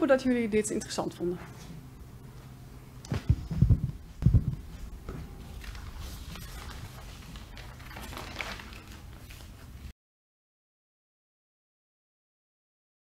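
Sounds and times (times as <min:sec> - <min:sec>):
low room hum: 0:00.0 - 0:09.9
muffled low thumps: 0:03.0 - 0:05.4.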